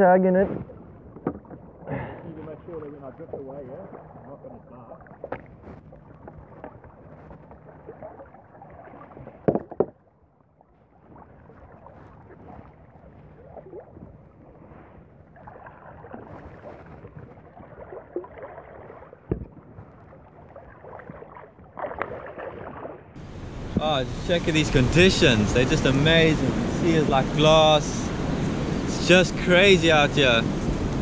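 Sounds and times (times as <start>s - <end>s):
water sloshing against a kayak: 0.0s - 31.0s.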